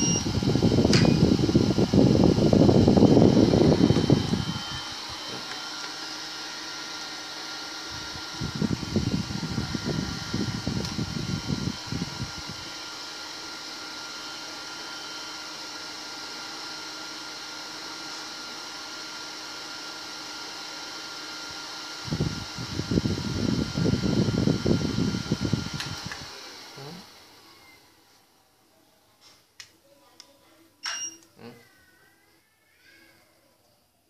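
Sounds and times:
fan blower rushing air: 0.0 - 27.5
faint motor whine: 0.0 - 29.2
wind buffeting microphone: 8.0 - 12.6.

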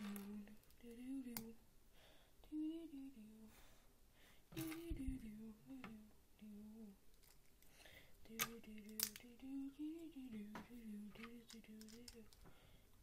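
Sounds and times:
plastic toy bricks clicking: 8.4 - 9.3, 11.2 - 12.4.

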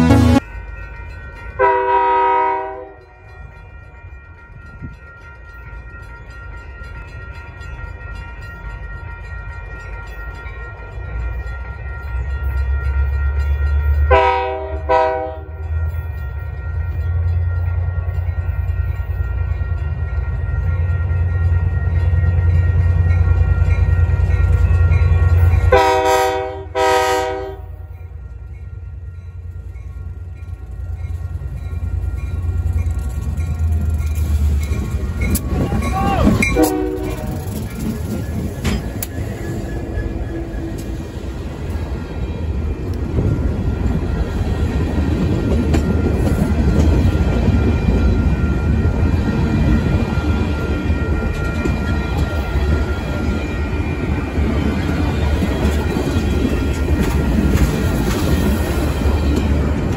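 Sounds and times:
locomotive air horn blasts: 0.0 - 0.4, 1.6 - 3.0, 14.1 - 15.5, 25.7 - 27.7, 36.5 - 37.4.

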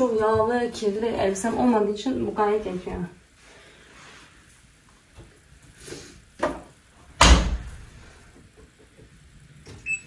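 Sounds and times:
washing machine door clunks: 7.2 - 7.8
washing machine door thud: 7.2 - 7.8.

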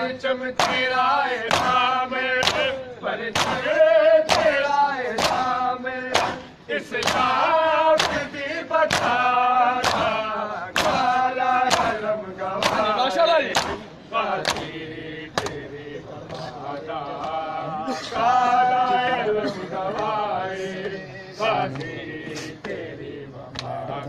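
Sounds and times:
men chanting a lament: 0.0 - 24.0
palms slapping bare chests: 0.6 - 7.4, 8.0 - 14.7.

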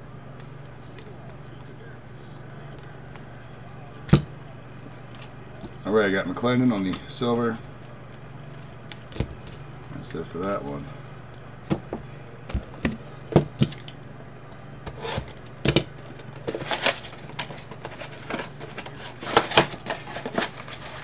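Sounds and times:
steady low hum: 0.0 - 21.0
rustling and crinkling: 16.0 - 21.0.

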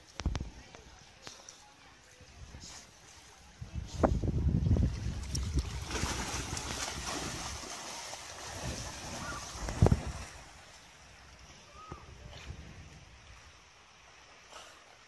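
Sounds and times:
dog paddling through water: 4.8 - 10.6.

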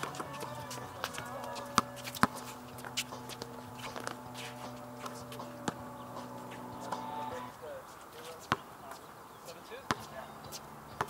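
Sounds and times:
basketball knocking: 0.0 - 7.2
steady hum: 0.0 - 7.6
faint voices: 0.0 - 11.0.

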